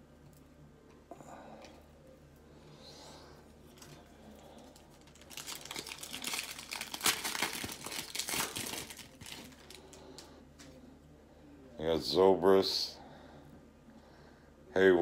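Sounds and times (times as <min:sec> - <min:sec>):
foil wrapper crinkling and tearing: 0:03.7 - 0:10.3.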